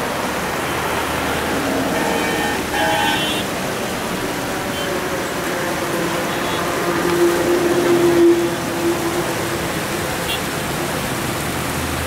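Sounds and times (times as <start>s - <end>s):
passing road traffic: 0.0s - 12.0s
short vehicle horn toots: 2.0s - 3.4s.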